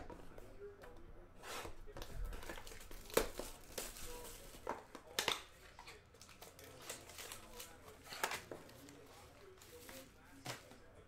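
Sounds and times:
cards being handled: 0.1 - 10.8
card pack wrappers crinkling: 5.8 - 10.2.

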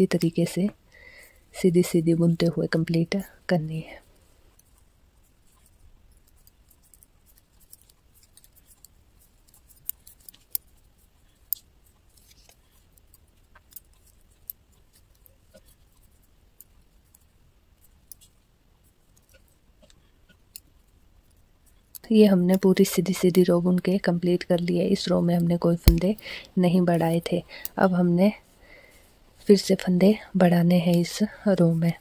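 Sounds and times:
knitting needles clicking: 4.5 - 18.4, 19.1 - 27.8.

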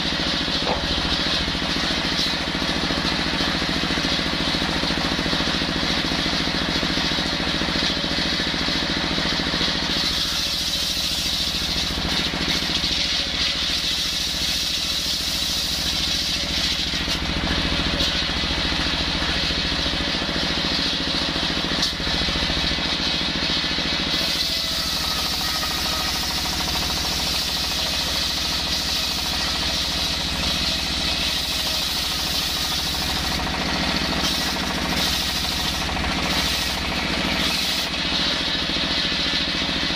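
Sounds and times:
diesel engine running: 0.0 - 39.9
saw ripping timber: 9.6 - 38.4
circular saw blade whining: 9.7 - 39.5.

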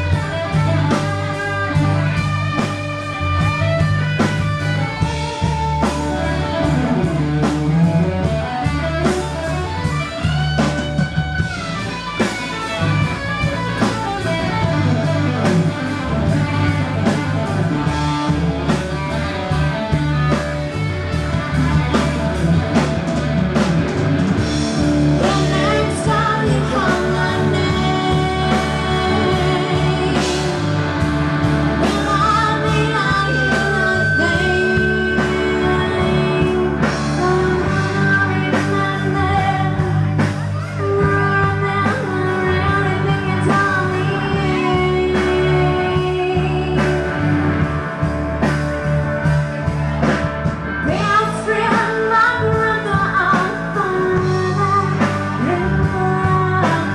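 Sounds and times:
bass guitar: 0.0 - 56.9
drum kit: 0.0 - 56.9
electric guitar lead: 0.0 - 56.9
person singing: 25.1 - 31.0, 31.6 - 47.5, 50.8 - 56.9.

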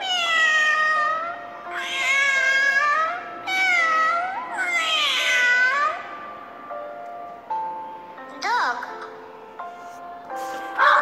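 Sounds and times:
cat meowing: 0.0 - 6.1
soft background music: 0.0 - 11.0.

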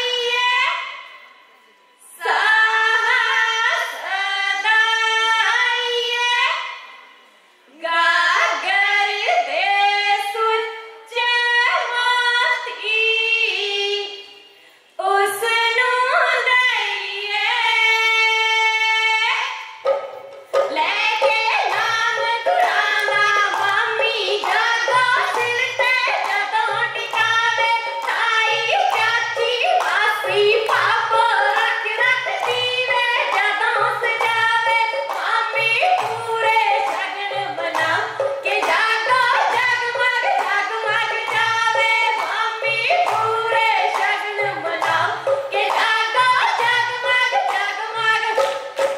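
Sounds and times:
women singing folk song: 2.0 - 6.8, 7.7 - 19.8, 20.5 - 48.9
rhythmic hand clapping: 19.8 - 48.9.

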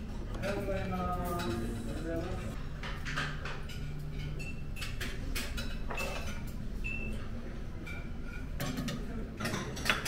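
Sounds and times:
tableware clinking: 3.0 - 7.1, 7.8 - 10.0.

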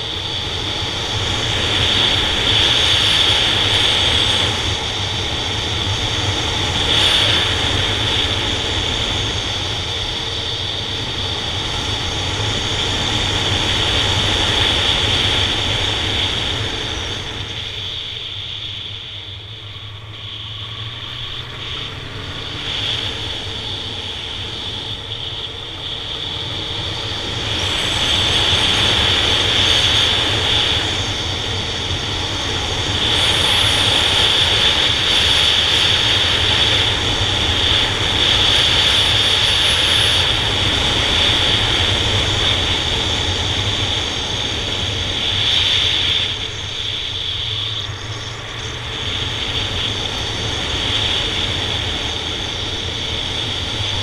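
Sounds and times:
wind rush over microphone: 0.0 - 54.0.

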